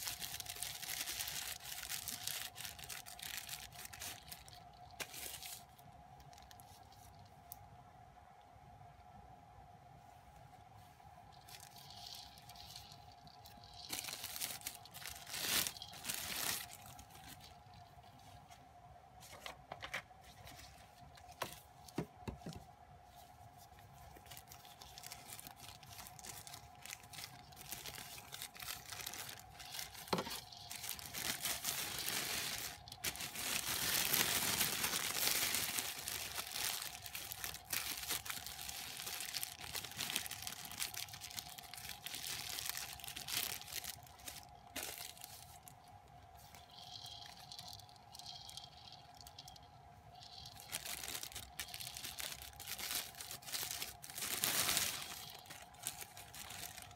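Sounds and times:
plastic bags crinkling: 0.0s - 7.3s, 11.3s - 18.5s, 19.3s - 56.9s.

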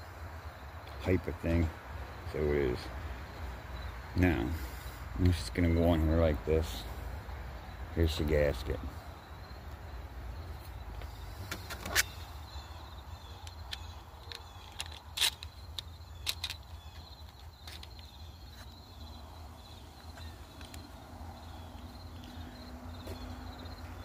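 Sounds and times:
faint insects chirring: 0.0s - 24.0s
plastic parts clicking: 13.4s - 18.2s.

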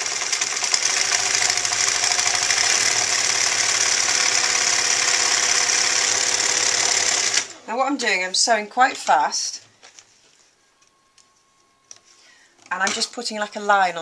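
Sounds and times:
sewing machine running fast: 0.0s - 7.6s.

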